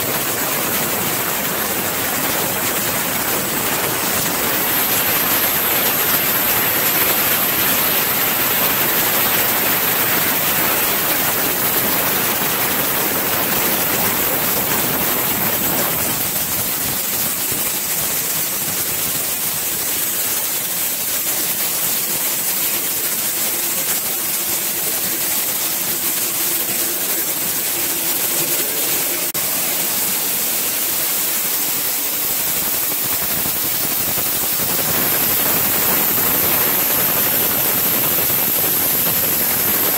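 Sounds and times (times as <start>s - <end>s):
mill machinery running: 0.0s - 39.9s.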